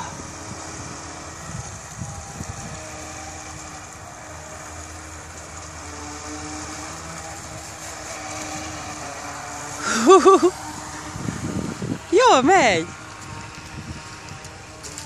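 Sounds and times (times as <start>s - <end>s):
toy boat motor humming: 0.0s - 15.0s
hull hissing on water: 0.1s - 12.2s.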